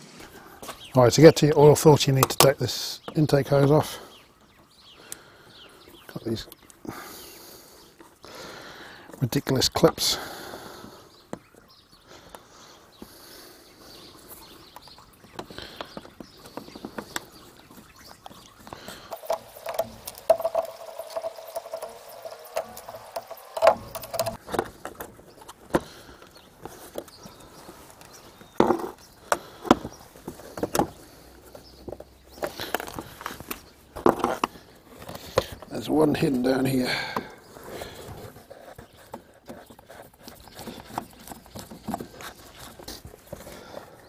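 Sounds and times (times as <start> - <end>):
metal tool scraping plastic: 18.7 - 25.8.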